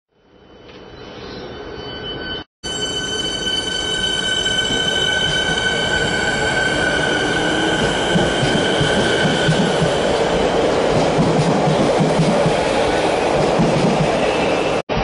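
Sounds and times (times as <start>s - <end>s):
electric train whine: 0.3s - 11.3s
train wheels rumbling on rails: 4.6s - 15.0s.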